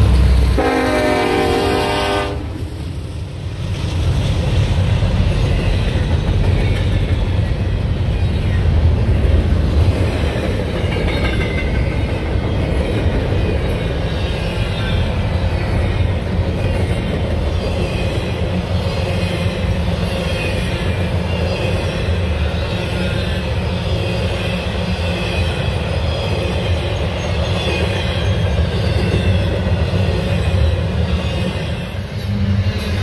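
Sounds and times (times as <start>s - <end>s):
train rumbling past: 0.0s - 33.0s
train horn: 0.5s - 2.8s.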